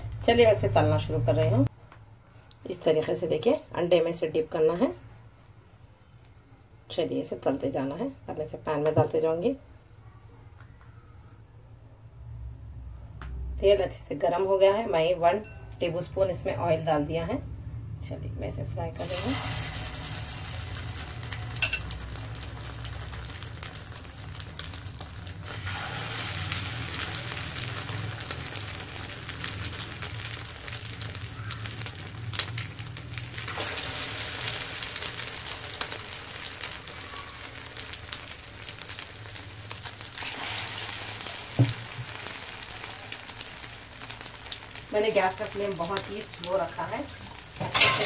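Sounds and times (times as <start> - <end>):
cutlets sizzling in hot oil: 19.0 - 48.0.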